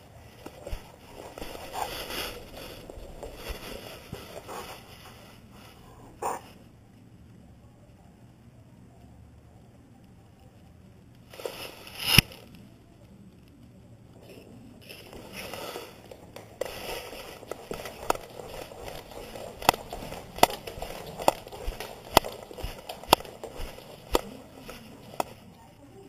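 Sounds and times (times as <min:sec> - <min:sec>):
camera rustling and rubbing: 0:00.0 - 0:05.8, 0:11.3 - 0:12.4, 0:14.8 - 0:25.6
clicks and knocks on hardwood floor: 0:14.9 - 0:25.5.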